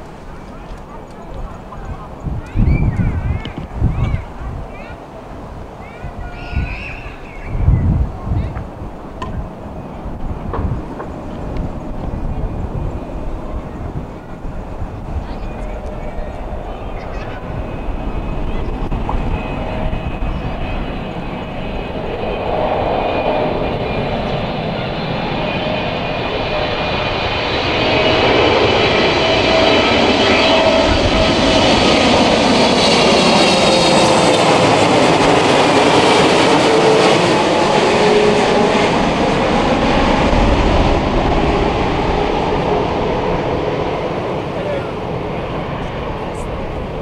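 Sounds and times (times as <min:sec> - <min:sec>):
jet airliner rumbling overhead: 0:00.0 - 0:47.0
whining jet fan tone: 0:00.0 - 0:47.0.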